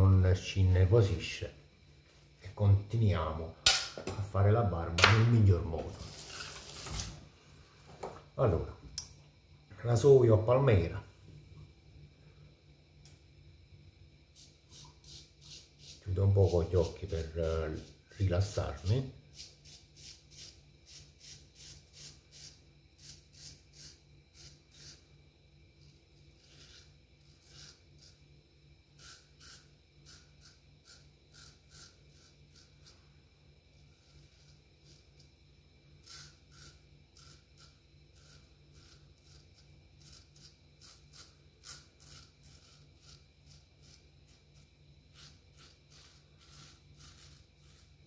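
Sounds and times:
razor scraping stubble: 14.4s - 18.0s, 26.4s - 28.2s, 29.0s - 33.0s, 36.0s - 48.0s.

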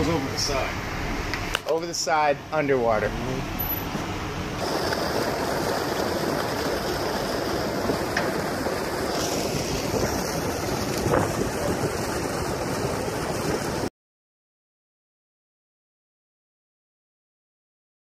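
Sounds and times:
water rushing along ship hull: 0.0s - 13.9s
wind buffeting microphone: 4.6s - 13.9s.

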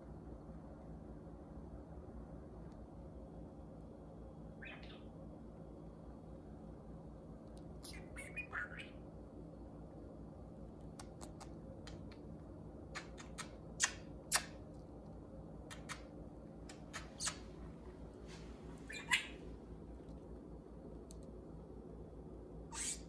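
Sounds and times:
low steady hum: 0.0s - 23.0s
budgerigars chirping and squawking: 4.6s - 5.0s, 7.8s - 9.0s, 18.9s - 19.4s.

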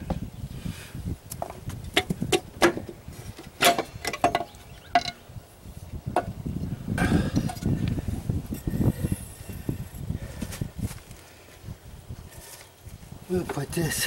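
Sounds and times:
metal cover knocks and clinks: 3.6s - 5.2s.

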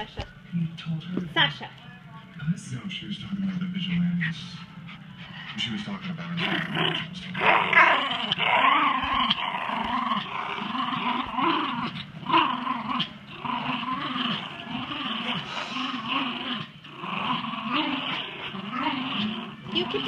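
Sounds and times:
dogs play-growling: 4.2s - 20.0s.

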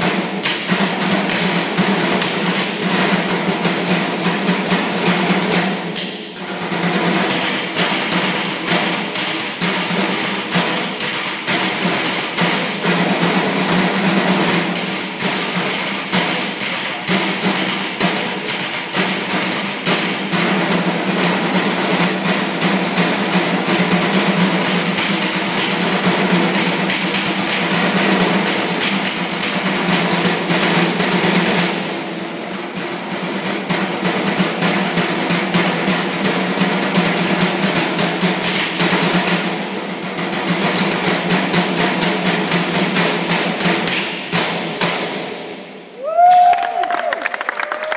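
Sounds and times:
drumsticks beating garbage cans: 0.0s - 31.8s, 32.4s - 45.1s
crowd cheering: 45.9s - 47.9s
loud whoop: 46.0s - 47.9s.

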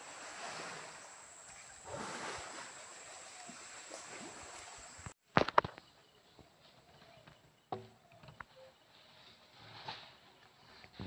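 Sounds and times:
stream water rushing: 0.0s - 5.1s.

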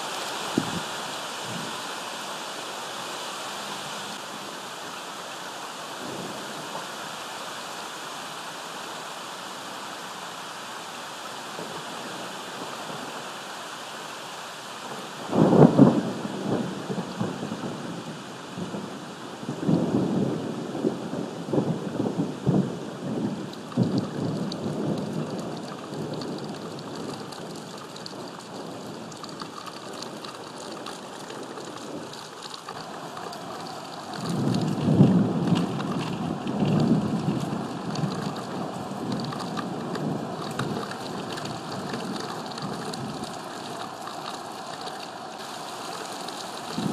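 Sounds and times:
steady rain hiss: 0.0s - 46.9s
rolling thunderclap: 15.2s - 17.8s, 21.5s - 43.3s, 46.7s - 46.9s.

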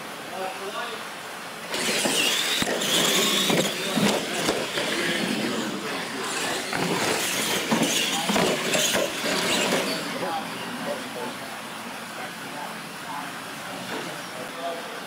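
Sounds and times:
trucks landing knocks: 1.7s - 10.1s
tyre noise: 1.7s - 10.3s
rc truck motor whine: 1.7s - 10.4s.

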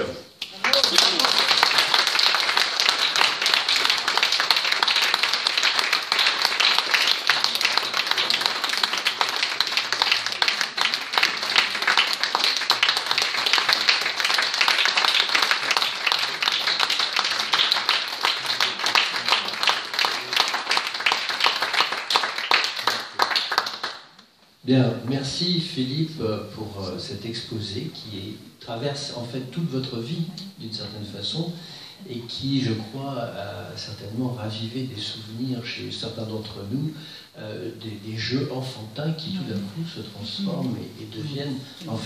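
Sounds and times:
audience applauding: 0.5s - 24.2s.

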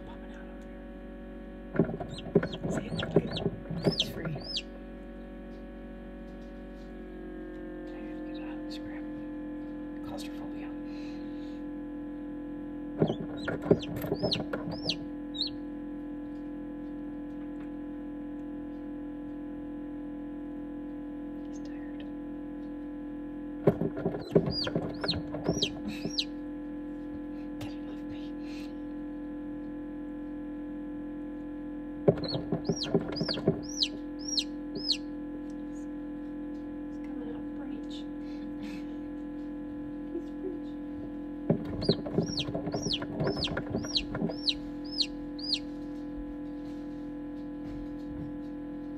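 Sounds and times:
steady hum: 0.0s - 48.9s
chick peeping: 1.9s - 4.7s, 13.0s - 15.6s, 24.2s - 26.3s, 32.2s - 35.0s, 41.7s - 45.7s.

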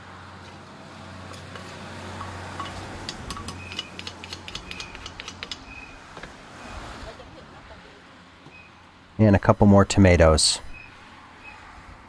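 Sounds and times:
spoon and pestle clinking in mortar: 1.6s - 5.7s.

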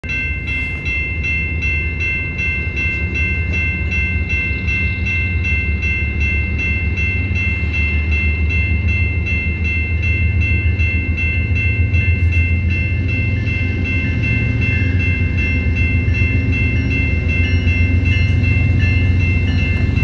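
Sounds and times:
level-crossing bell ringing: 0.0s - 20.0s
train locomotive rumbling: 0.0s - 20.0s.

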